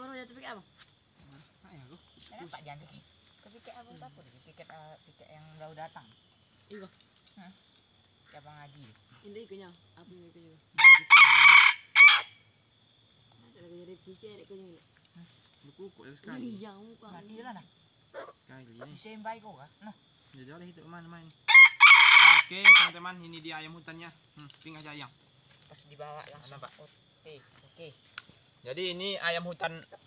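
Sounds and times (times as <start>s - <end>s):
high buzz of insects: 0.0s - 30.0s
rooster crowing: 10.8s - 12.4s, 21.5s - 23.0s.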